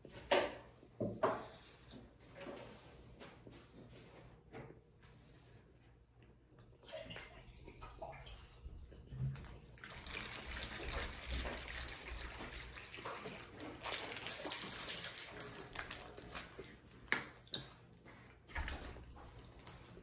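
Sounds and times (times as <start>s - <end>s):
liquid sloshing in plastic bottle: 6.7s - 17.6s.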